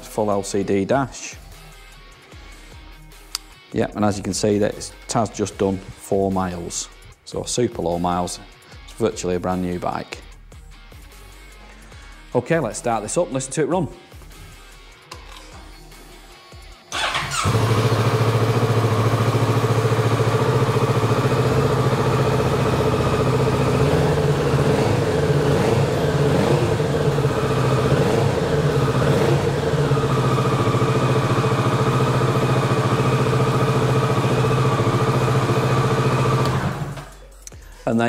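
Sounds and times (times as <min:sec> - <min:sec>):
motorcycle engine starting and idling: 0:16.9 - 0:37.2.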